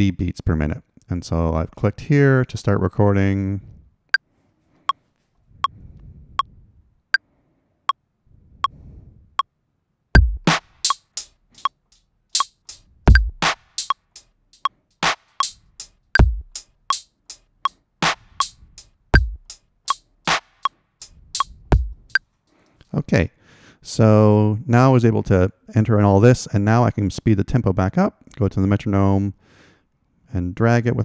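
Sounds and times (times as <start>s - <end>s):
electronic drum hits: 10.2s - 11.0s, 13.1s - 14.0s, 16.2s - 16.6s, 19.2s - 19.5s
electronic kick drum: 10.2s - 11.0s, 13.1s - 14.0s, 16.2s - 17.0s, 19.2s - 19.6s, 21.4s - 22.2s
metronome clicks: 10.2s - 14.7s, 15.4s - 15.6s, 16.2s - 17.4s.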